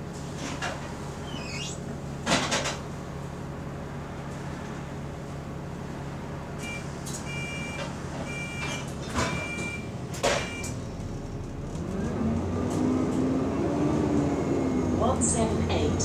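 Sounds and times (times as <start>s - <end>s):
bus engine: 0.0s - 16.0s
bus door warning beeps: 6.6s - 10.8s
bus doors knocking shut: 7.4s - 10.8s.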